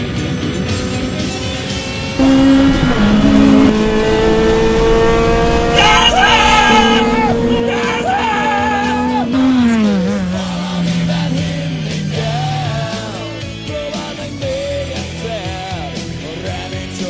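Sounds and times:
race car engine at speed: 0.0s - 17.0s
rock music: 0.0s - 17.0s
person singing long wavering notes: 5.6s - 13.4s.

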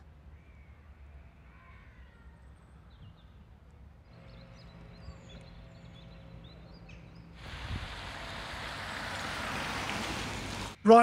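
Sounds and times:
bird chirps: 4.0s - 7.4s.

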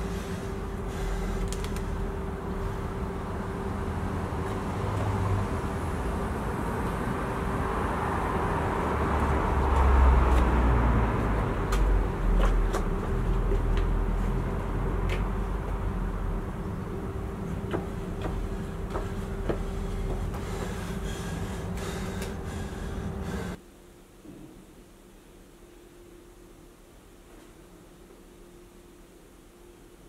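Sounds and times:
road traffic rumble: 0.0s - 23.6s
vehicle passing: 1.8s - 23.6s.

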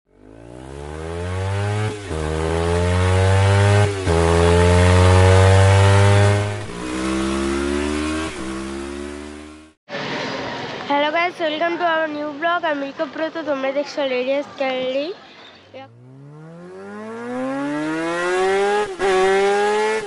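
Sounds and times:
motorcycle engine accelerating: 0.1s - 9.8s, 15.9s - 20.0s.

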